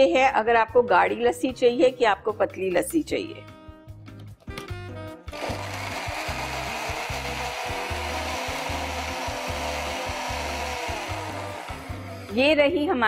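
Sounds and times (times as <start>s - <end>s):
electric blender running: 5.3s - 12.4s.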